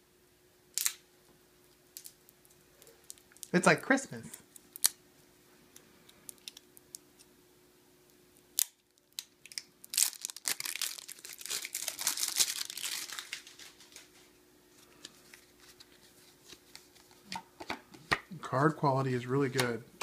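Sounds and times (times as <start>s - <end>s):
plastic wrap tearing: 8.6s - 14.3s
plastic crinkling: 8.6s - 17.3s.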